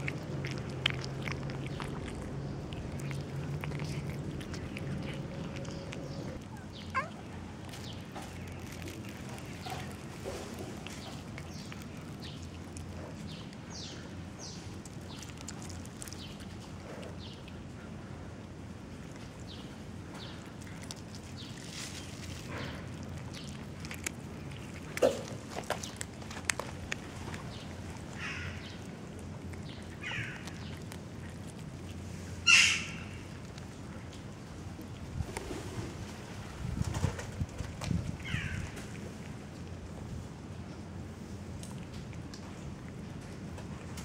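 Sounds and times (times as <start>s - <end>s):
cat chewing clicks: 0.0s - 18.1s, 18.8s - 32.2s, 41.5s - 44.0s
birds chirping: 0.0s - 18.2s, 18.9s - 31.6s
steady low hum: 0.0s - 44.0s
bird calling: 32.4s - 33.2s.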